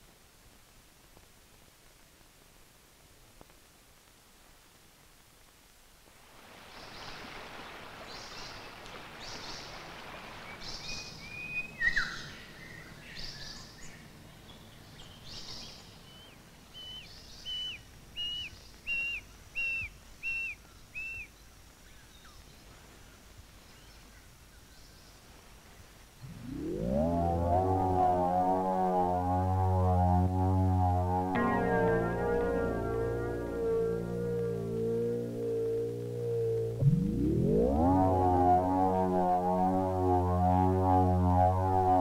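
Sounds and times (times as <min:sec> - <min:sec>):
outdoor ambient hiss: 0:00.0 - 0:42.0
birds chirping: 0:16.0 - 0:21.3.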